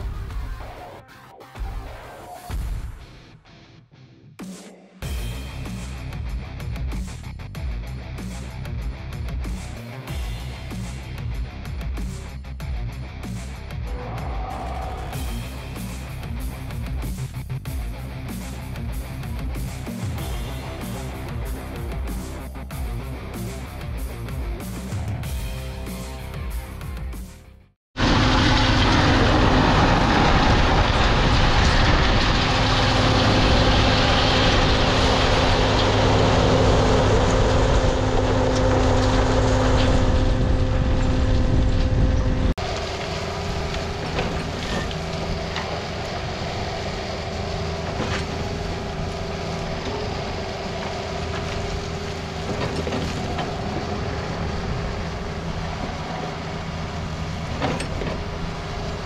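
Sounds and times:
gravel pouring out: 0:28.0 - 0:41.7
dump truck diesel engine running: 0:28.0 - 0:59.0
mini excavator engine running: 0:28.0 - 0:59.0.

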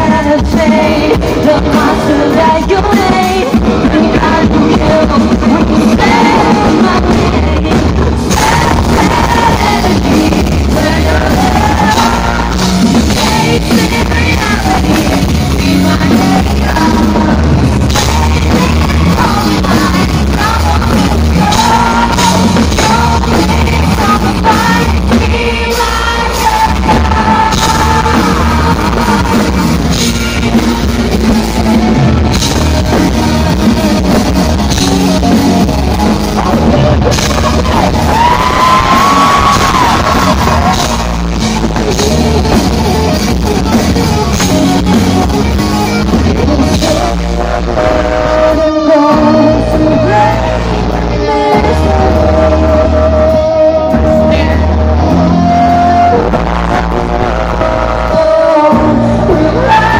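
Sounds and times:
bass guitar: 0:00.0 - 0:59.9
electric guitar: 0:00.0 - 0:59.9
pounding drum kit: 0:00.0 - 0:59.9
woman singing lead: 0:00.0 - 0:59.9.

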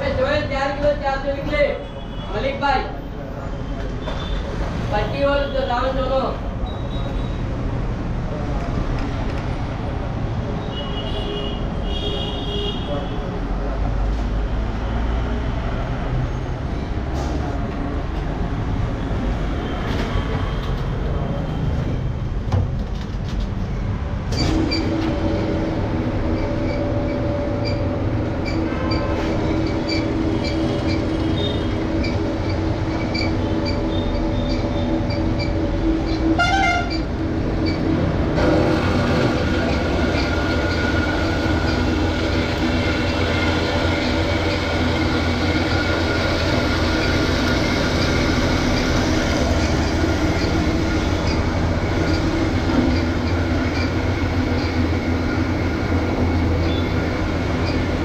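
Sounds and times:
vehicle rumble: 0:13.6 - 0:58.0
horn-like pulsing tone: 0:32.9 - 0:37.8.

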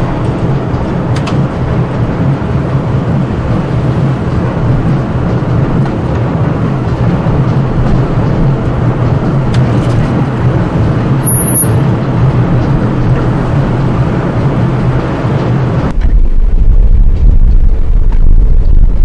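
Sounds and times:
crane running noise: 0:00.0 - 0:19.0
low rumble: 0:00.0 - 0:19.0
high squeal: 0:11.2 - 0:12.0.

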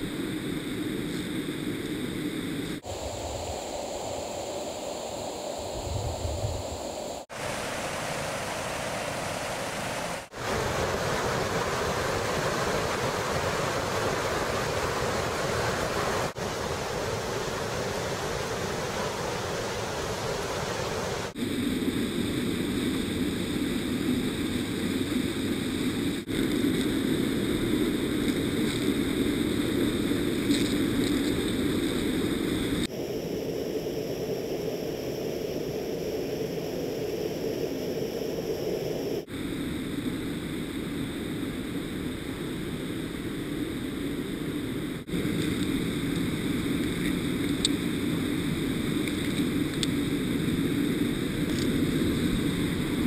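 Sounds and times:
mountain torrent rushing: 0:02.8 - 0:21.4
small waterfalls: 0:07.3 - 0:21.4.

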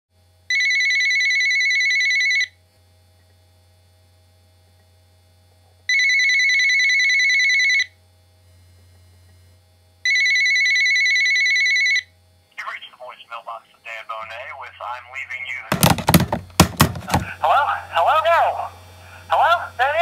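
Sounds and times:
telephone ringing: 0:00.5 - 0:02.5, 0:05.9 - 0:07.8, 0:10.1 - 0:12.0.

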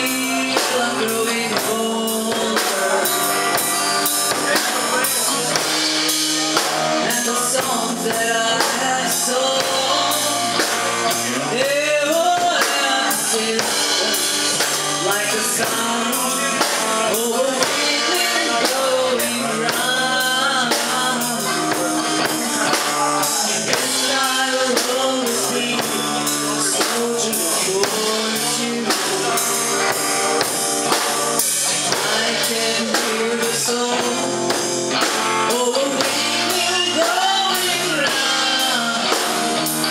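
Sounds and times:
drum kit beat: 0:00.0 - 0:39.9
guitar: 0:00.0 - 0:39.9
person singing into a microphone: 0:00.0 - 0:39.9.

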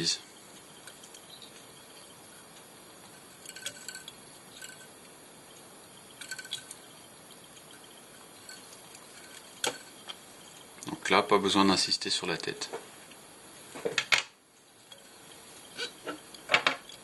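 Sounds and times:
low steady hiss: 0:00.0 - 0:17.0
faint clicks and ticks: 0:00.3 - 0:11.0.

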